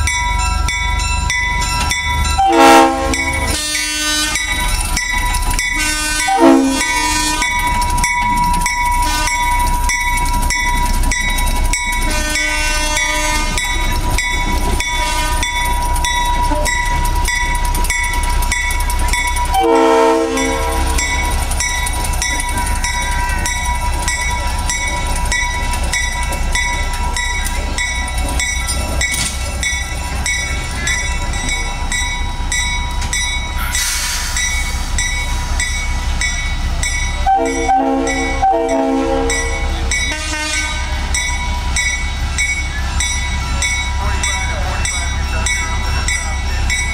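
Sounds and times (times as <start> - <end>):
diesel locomotive engine rumbling: 0.0 - 46.9
wheels clicking over rail joints: 0.1 - 46.9
locomotive horn blasts: 2.4 - 4.5, 5.8 - 7.5, 9.0 - 9.4, 12.0 - 13.6, 15.0 - 15.5, 19.5 - 21.0, 37.2 - 41.0.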